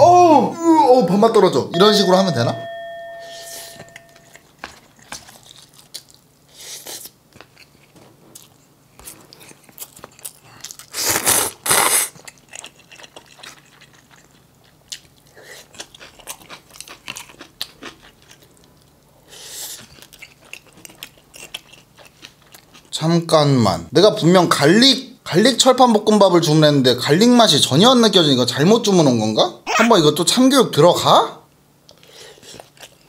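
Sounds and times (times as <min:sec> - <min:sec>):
close chewing with mouth sounds: 0:03.6 - 0:23.1, 0:31.8 - 0:33.0.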